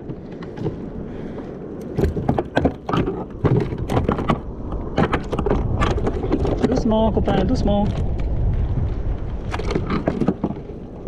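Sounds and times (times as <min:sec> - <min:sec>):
wind rumbling on microphone: 0:00.0 - 0:11.0
knocks and clicks on plastic kayak: 0:01.8 - 0:06.8.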